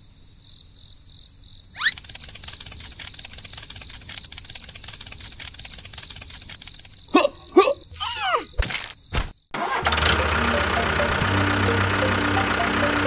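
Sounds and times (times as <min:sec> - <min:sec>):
crickets chirring: 0:00.0 - 0:09.5
fast clicking rattle: 0:01.8 - 0:07.1.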